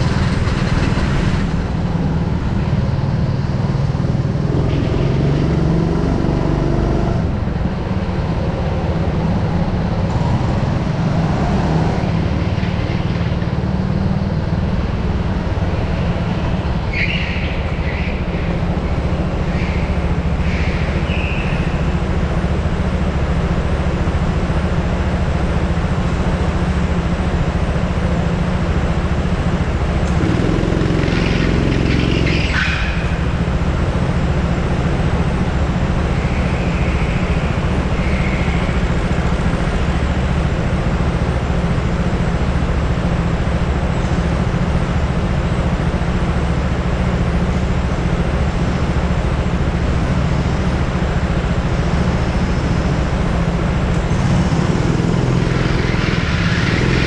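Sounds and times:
go-kart engine droning: 0:00.0 - 0:57.0
broad rushing noise: 0:45.4 - 0:57.0.

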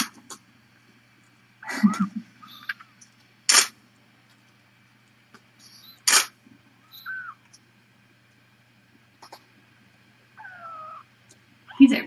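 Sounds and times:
kitten squeaking: 0:01.9 - 0:02.8, 0:06.8 - 0:07.4, 0:10.4 - 0:11.1
sharp bursts of noise: 0:03.5 - 0:03.8, 0:05.9 - 0:06.4.

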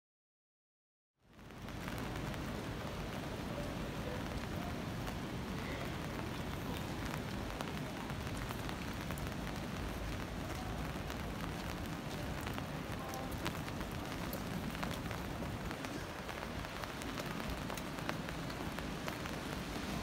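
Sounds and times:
rain on wet street: 0:01.2 - 0:20.0.

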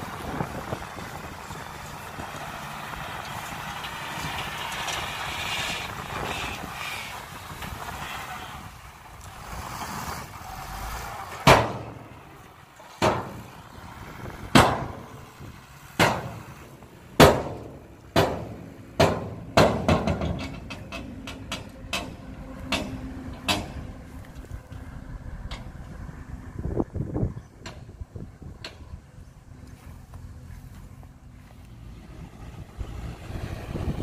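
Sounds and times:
truck engine running: 0:00.0 - 0:34.0
metal tailgate banging: 0:17.2 - 0:23.8.

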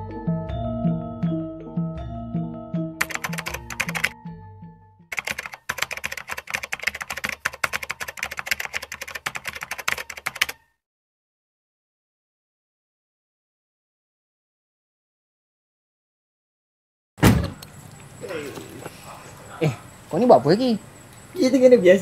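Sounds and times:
slow music with low notes: 0:00.0 - 0:03.0, 0:04.1 - 0:05.1
keyboard typing: 0:03.0 - 0:04.2, 0:05.1 - 0:10.6.

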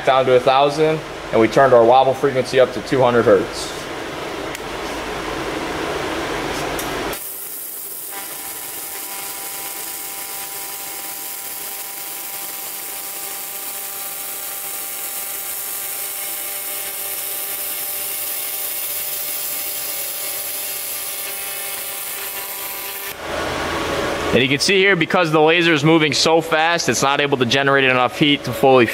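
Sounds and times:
laser welder buzzing whine: 0:07.0 - 0:23.9.

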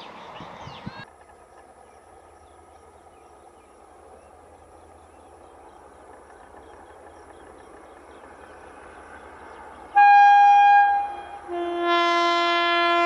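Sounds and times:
small birds chirping: 0:00.0 - 0:10.0
train wheels rumbling on rail: 0:00.0 - 0:13.0.

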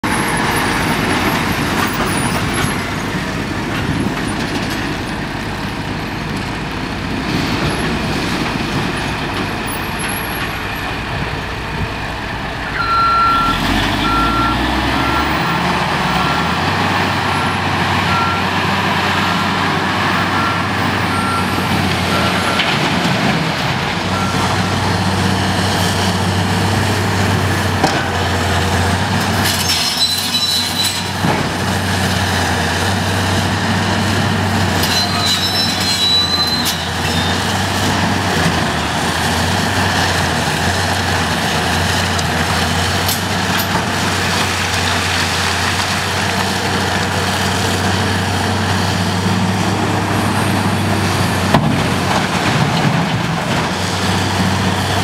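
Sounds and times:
diesel truck engine running: 0:00.0 - 0:29.6, 0:36.0 - 0:55.0
reversing alarm beeping: 0:12.7 - 0:16.6, 0:17.2 - 0:18.6, 0:20.2 - 0:22.8, 0:24.1 - 0:24.7.

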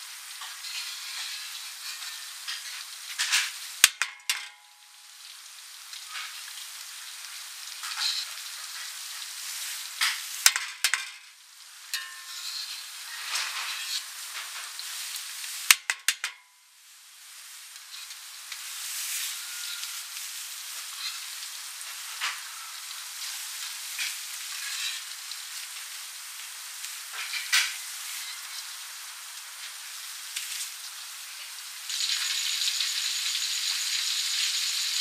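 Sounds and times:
food deep-frying in oil: 0:00.0 - 0:35.0
metal skimmer clinking on wok: 0:03.8 - 0:04.8, 0:12.0 - 0:12.7.

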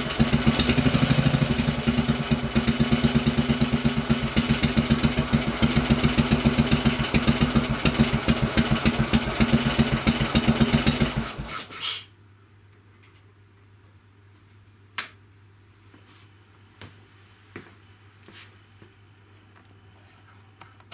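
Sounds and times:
single-cylinder engine idling: 0:00.0 - 0:11.5.

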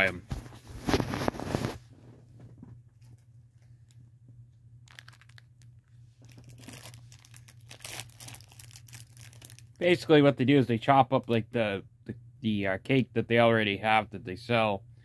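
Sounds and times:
low steady hum: 0:00.0 - 0:15.0
plastic wrapper crinkling: 0:04.8 - 0:09.8.

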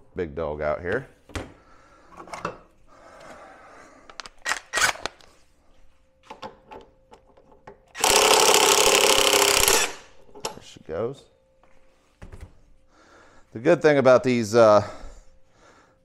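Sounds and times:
impact wrench hammering: 0:08.0 - 0:10.2.

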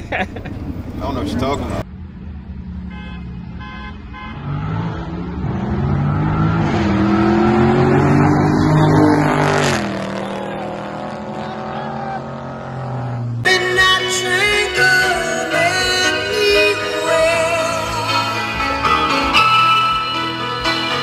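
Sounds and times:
car accelerating past: 0:04.4 - 0:13.5.

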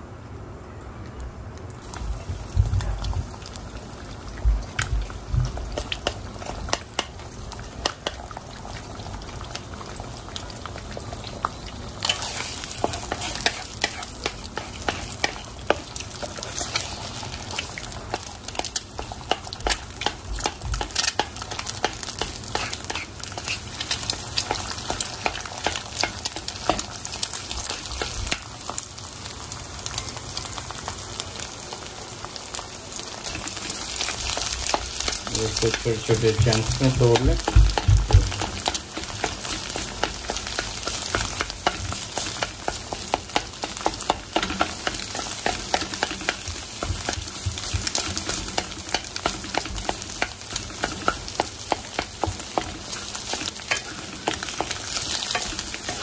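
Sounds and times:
eggs sizzling in hot oil: 0:01.8 - 0:56.0
wooden spatula scraping metal wok: 0:12.0 - 0:17.0, 0:20.0 - 0:26.8.

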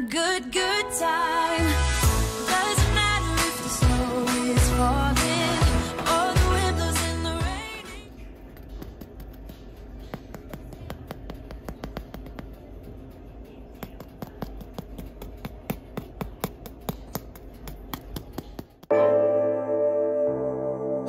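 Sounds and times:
loud music: 0:01.2 - 0:07.9.

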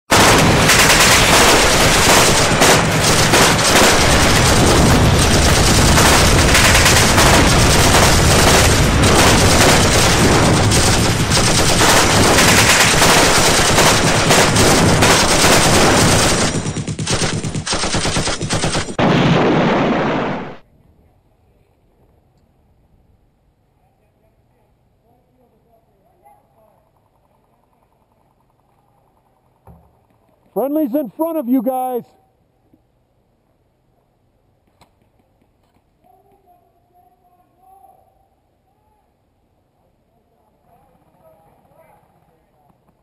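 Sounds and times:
automatic gunfire: 0:00.1 - 0:20.6.

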